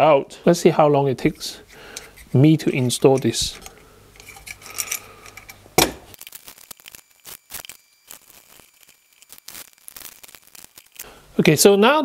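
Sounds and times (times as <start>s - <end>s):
plastic parts clicking and crinkling: 2.0s - 11.1s.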